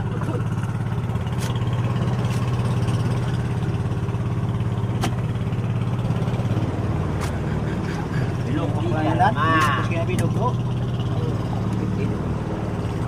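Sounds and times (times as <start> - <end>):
boat engine running: 0.0 - 13.0
sharp clicks from fish handling: 5.0 - 5.2.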